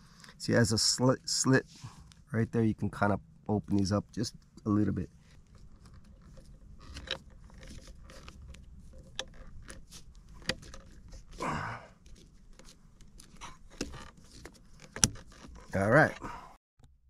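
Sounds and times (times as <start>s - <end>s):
small clicks and creaks: 3.5s - 16.2s
scraping rustle: 3.7s - 16.2s.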